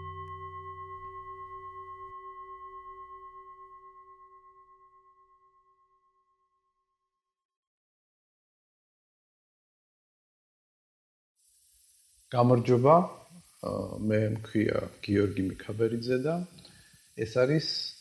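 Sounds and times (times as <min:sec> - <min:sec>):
singing bowl bell ringing: 0:00.0 - 0:06.7.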